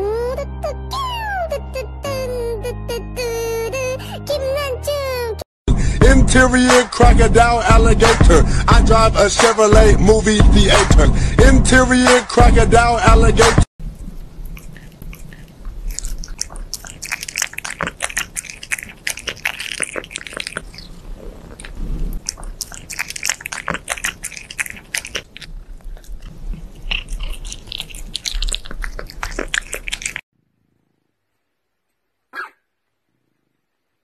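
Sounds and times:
cats chewing raw meat: 13.8s - 30.3s.

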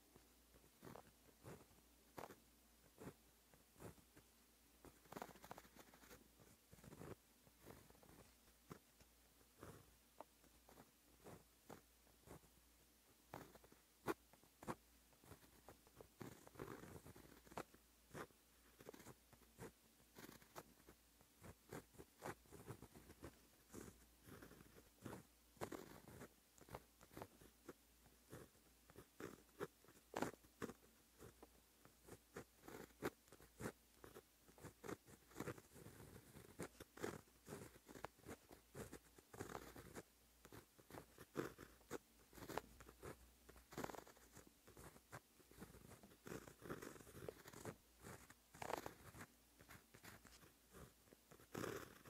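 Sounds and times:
pen scratching on paper: 0.0s - 52.0s.

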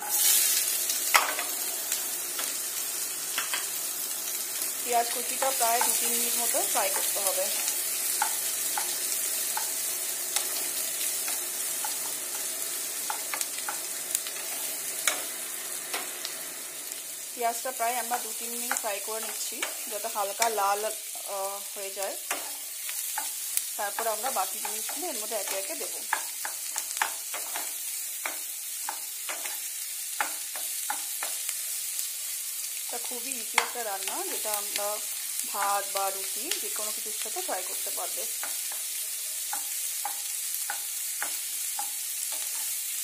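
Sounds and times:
onions sizzling in oil: 0.0s - 43.0s
spatula knocking and scraping pan: 6.9s - 15.3s, 22.2s - 31.4s, 38.4s - 42.8s.

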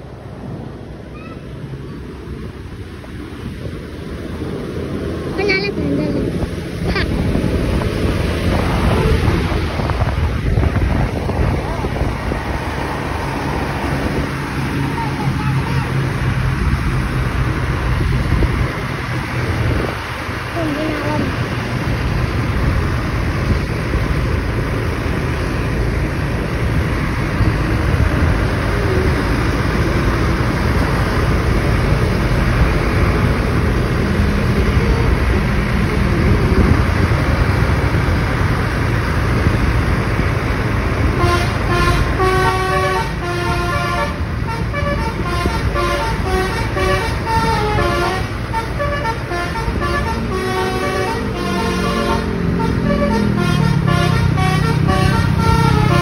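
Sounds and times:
engine rumble: 0.0s - 56.0s
wind: 0.0s - 56.0s
melodic air horn tune: 41.2s - 56.0s.

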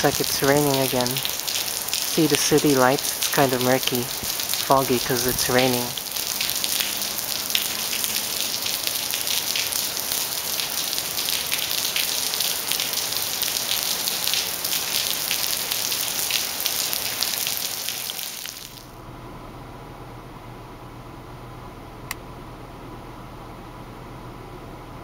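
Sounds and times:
faint steady hiss: 0.0s - 18.9s
rain on wet pavement: 0.0s - 19.0s.

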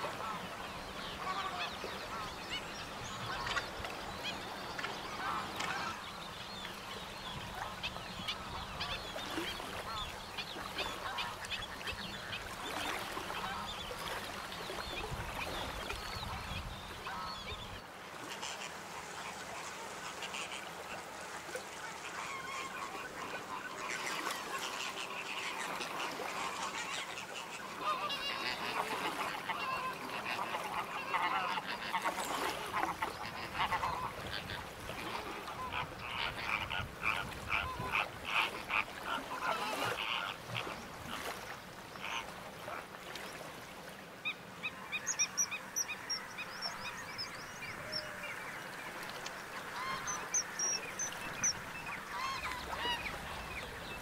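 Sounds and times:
geese honking: 22.0s - 34.6s, 49.7s - 53.4s.

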